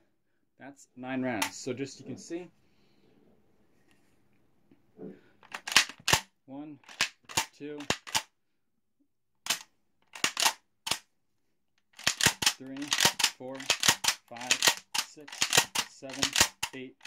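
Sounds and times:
shotgun bolt racking clacks: 5.4s - 6.2s, 6.8s - 8.3s, 9.4s - 11.0s, 12.0s - 16.8s.

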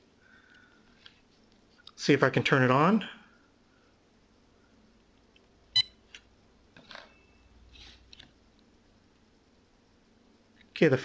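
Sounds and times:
cordless phone beep: 5.8s - 6.0s.

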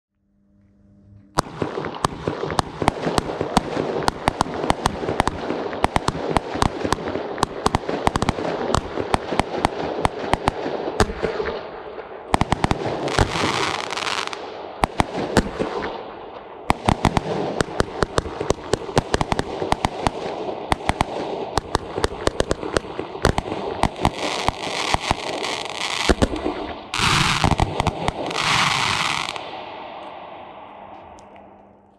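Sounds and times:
firework crackle: 1.4s - 11.7s, 12.3s - 16.0s, 16.7s - 31.2s
firework shots and bangs: 1.4s - 31.2s
firework rushing: 16.7s - 30.6s.

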